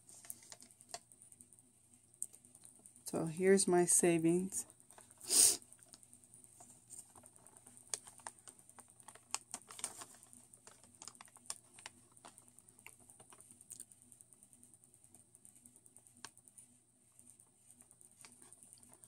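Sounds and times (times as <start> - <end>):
paper receipts crinkling: 6.9 - 13.8.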